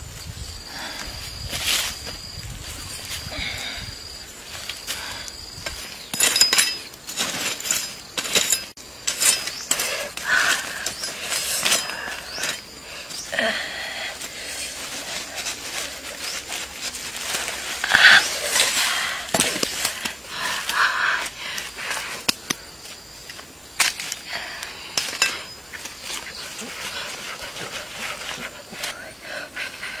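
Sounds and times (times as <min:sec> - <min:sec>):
charred leaves crackling: 0:04.0 - 0:20.8
knife raking through charcoal: 0:05.7 - 0:12.8.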